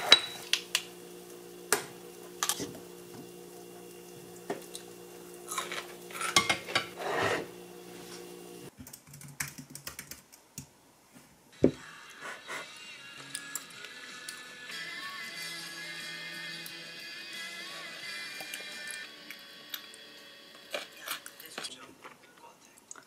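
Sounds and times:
dishes and jar clinking on stone: 0.0 - 0.5
steady low hum: 0.2 - 8.7
typing on computer keyboard: 8.7 - 10.7.

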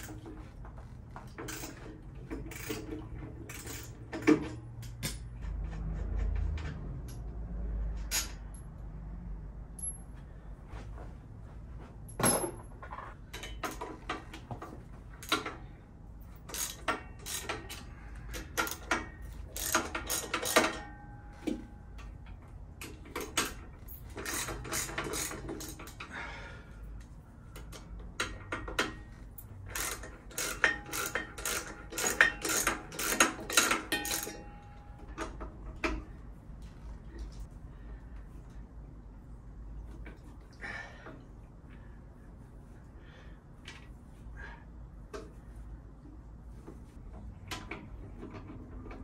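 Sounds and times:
ratchet wrench clicking: 1.4 - 7.2, 16.4 - 20.9, 22.8 - 26.1, 27.6 - 34.4
tools clinking against metal: 27.7 - 35.4.

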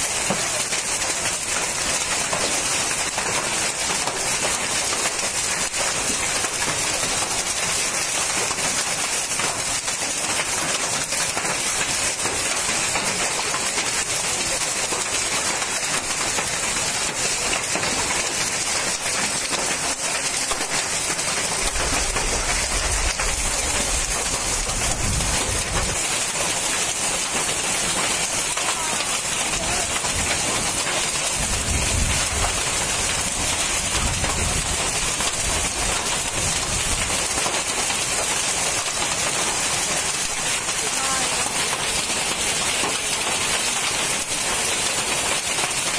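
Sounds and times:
hailstones hitting ground: 0.0 - 45.9
heavy rain hiss: 0.0 - 45.9.

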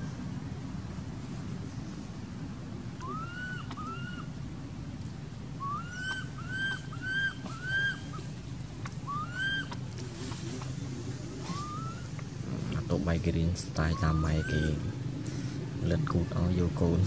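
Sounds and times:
low background rumble: 0.0 - 17.0
baby monkey squealing calls: 3.0 - 4.3, 5.6 - 8.3, 8.9 - 9.8, 11.4 - 12.2, 13.7 - 14.9.

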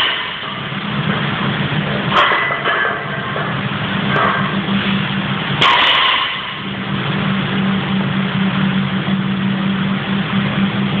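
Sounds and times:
barbell dropped on rubber floor: 0.0 - 0.6, 2.1 - 3.5, 5.6 - 6.7
low mechanical drone: 0.0 - 11.0.

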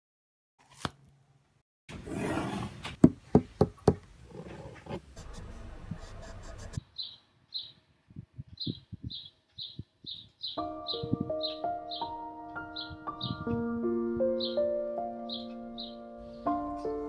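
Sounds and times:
bird chirping: 6.8 - 13.6, 14.2 - 17.0.

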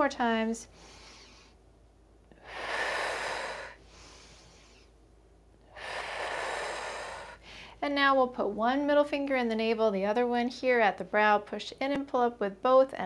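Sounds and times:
woman exhaling: 2.3 - 4.9, 5.7 - 7.8.

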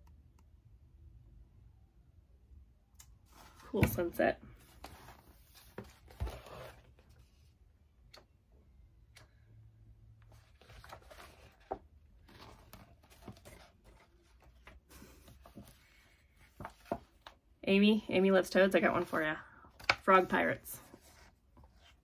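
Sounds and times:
paper rustling: 10.3 - 17.4, 19.8 - 22.0.

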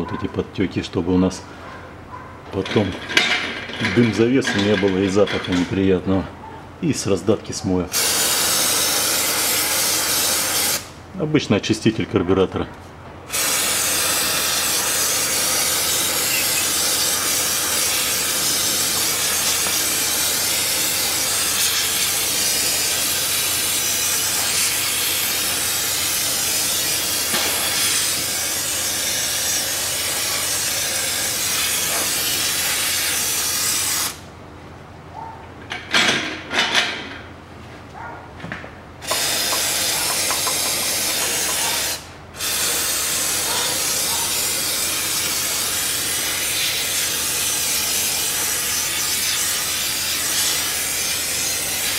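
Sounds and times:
aerosol can spraying: 7.9 - 10.9, 13.3 - 34.2, 39.0 - 51.9.

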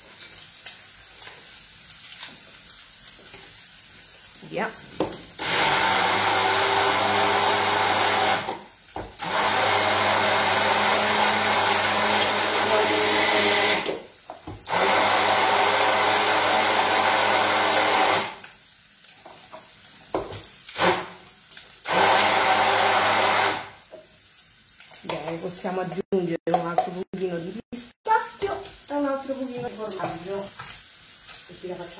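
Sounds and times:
immersion blender motor whine: 5.4 - 14.0, 14.7 - 18.4, 20.8 - 21.1, 21.8 - 23.8.

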